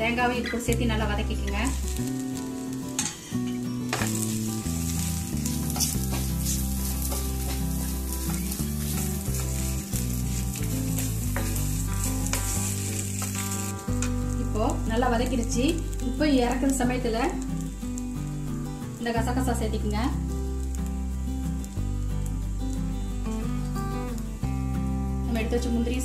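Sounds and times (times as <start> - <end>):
background music: 0.0 - 26.0
food sizzling in oil: 0.0 - 26.0
wooden spatula scraping a pan: 4.0 - 13.7.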